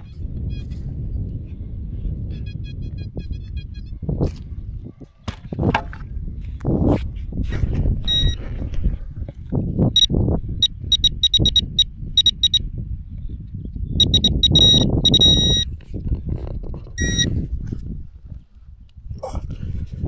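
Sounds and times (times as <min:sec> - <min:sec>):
metal detector high beeps: 0:08.1 - 0:08.4, 0:10.0 - 0:12.6, 0:14.0 - 0:15.7, 0:17.0 - 0:17.3.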